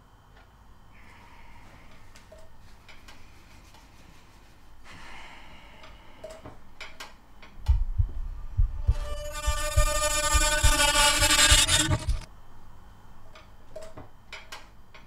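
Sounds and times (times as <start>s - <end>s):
heavy low thumps: 7.7s - 12.3s.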